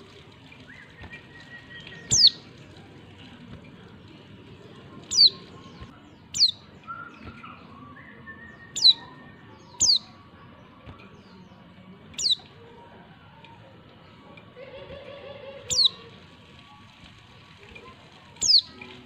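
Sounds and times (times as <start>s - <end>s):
bird chirps sweeping downward: 0.6s - 2.4s, 5.0s - 10.2s, 12.2s - 12.5s, 15.7s - 16.0s, 18.4s - 18.7s.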